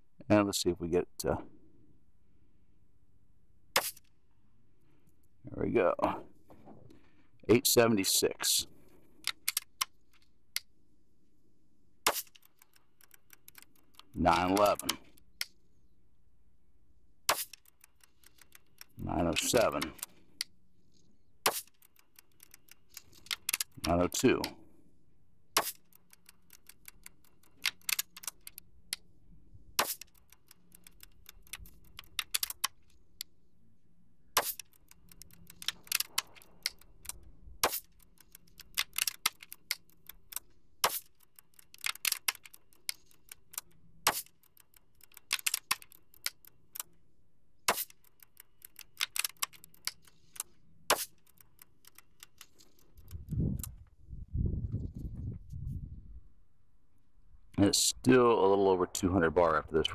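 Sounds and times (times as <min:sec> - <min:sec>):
air rifle cocking and firing: 0:03.7 - 0:04.2, 0:09.2 - 0:10.7, 0:12.0 - 0:15.6, 0:17.2 - 0:20.6, 0:21.4 - 0:24.6, 0:25.5 - 0:29.1, 0:29.7 - 0:33.3, 0:34.3 - 0:47.0, 0:47.6 - 0:53.8.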